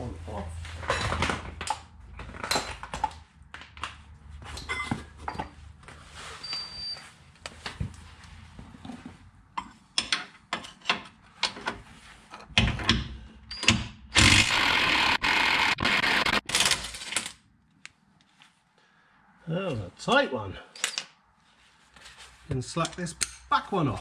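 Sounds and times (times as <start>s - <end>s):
impact wrench hammering: 14.2s - 16.4s.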